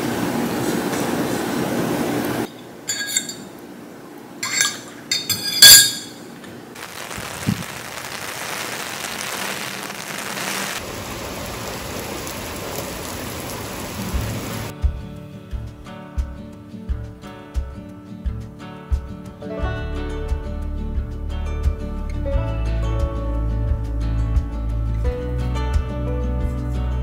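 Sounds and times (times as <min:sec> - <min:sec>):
dishes clinking on a table: 0:02.5 - 0:03.6, 0:04.4 - 0:06.5
steady rain: 0:06.8 - 0:14.7.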